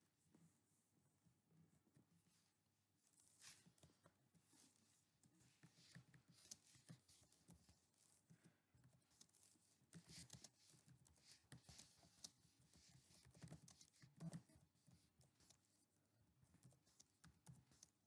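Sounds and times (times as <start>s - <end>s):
typing on computer keyboard: 8.8s - 14.6s.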